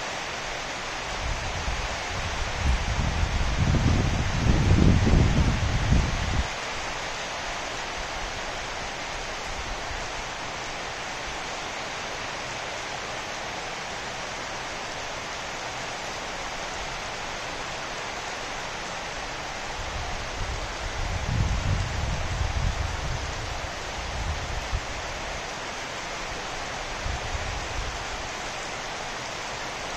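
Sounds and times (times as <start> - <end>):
heavy rain on foliage: 0.0 - 29.9
leaves rustling: 0.0 - 29.9
wind rumbling on microphone: 1.0 - 7.0, 19.7 - 25.5, 26.8 - 28.4.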